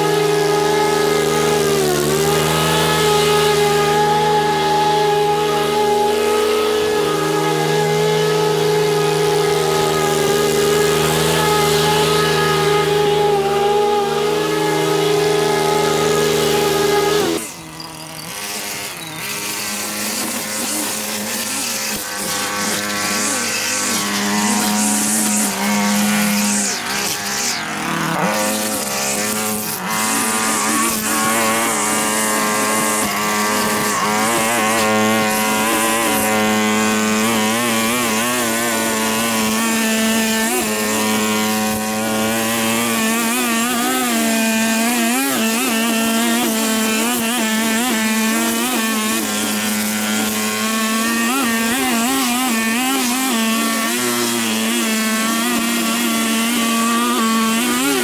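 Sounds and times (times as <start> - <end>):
small petrol engine running: 0.0 - 58.0.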